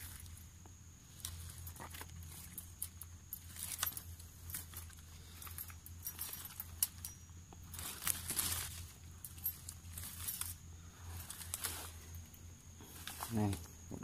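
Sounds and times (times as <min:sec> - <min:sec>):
metal mesh cage clicking and rattling: 0:01.1 - 0:12.4.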